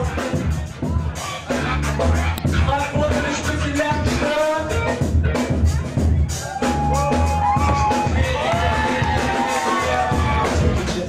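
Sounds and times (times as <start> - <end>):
bass-drum beat: 0.0 - 11.0
hip-hop music: 0.0 - 11.0.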